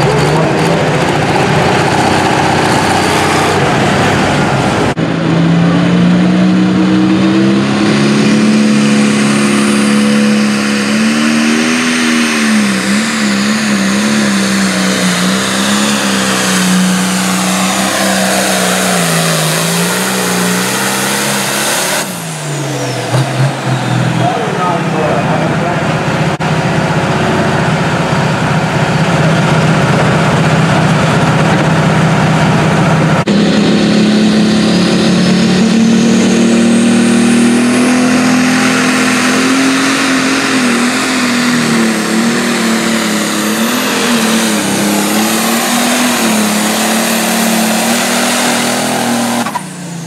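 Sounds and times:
diesel tractor engine under load: 0:00.0 - 0:50.0
high whine: 0:00.0 - 0:50.0.

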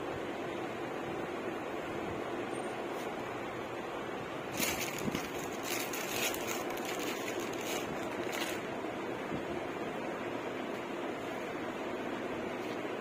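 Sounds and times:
cloth and plastic rustling: 0:04.5 - 0:08.7.

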